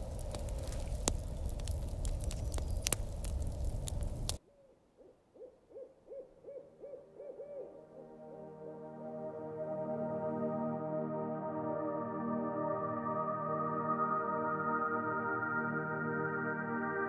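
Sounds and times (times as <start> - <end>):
wood fire crackling: 0.0 - 4.4
owl hooting: 4.5 - 8.5
soft ambient music: 6.4 - 17.0.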